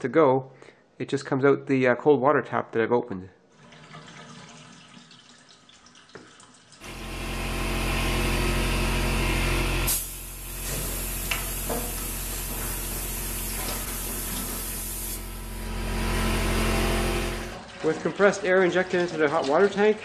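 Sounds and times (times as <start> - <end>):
water trickling from tap: 3.6 - 6.8, 17.5 - 20.0
air compressor humming: 6.8 - 17.6.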